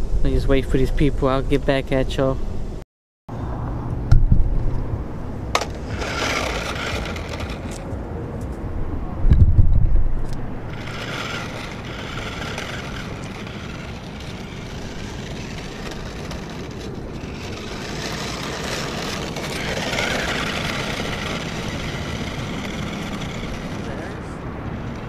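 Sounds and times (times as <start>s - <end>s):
steady rushing noise: 3.9s - 25.0s.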